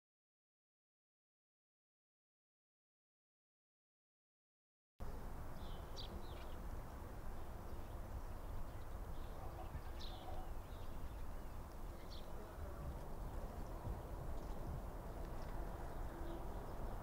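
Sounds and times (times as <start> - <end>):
wind on microphone: 9.5 - 17.0.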